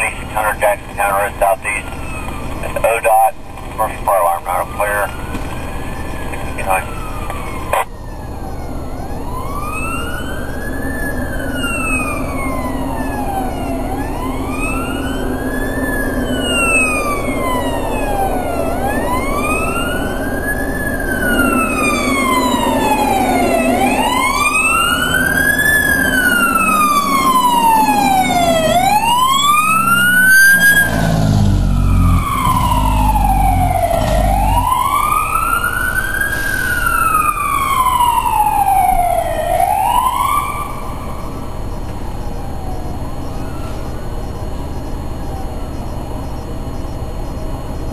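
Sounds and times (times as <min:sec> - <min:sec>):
deep truck rumble: 0:00.0 - 0:39.2
fire engine wail siren: 0:00.0 - 0:47.9.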